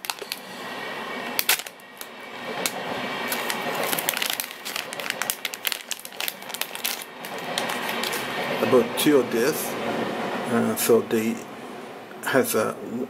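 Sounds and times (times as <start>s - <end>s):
plastic bag crinkling: 0.0s - 0.4s, 1.4s - 2.1s, 3.3s - 8.2s.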